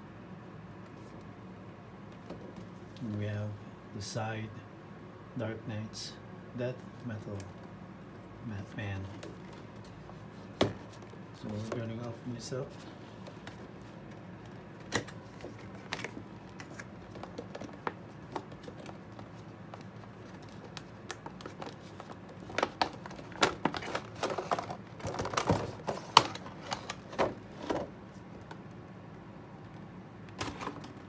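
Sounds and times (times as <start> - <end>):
cardboard and plastic rustling: 8.8 - 28.6, 30.4 - 31.0.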